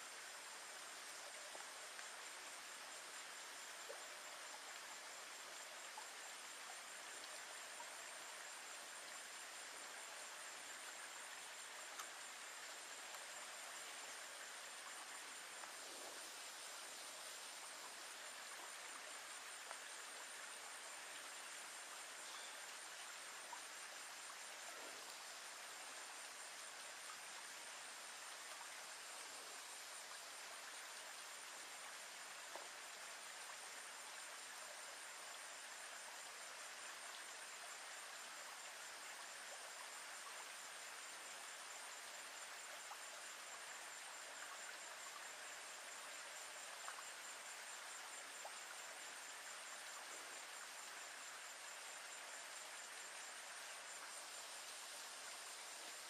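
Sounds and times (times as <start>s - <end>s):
insects trilling: 0.0s - 56.0s
soft outdoor background hiss: 0.0s - 56.0s
faint ticks: 0.1s - 51.2s.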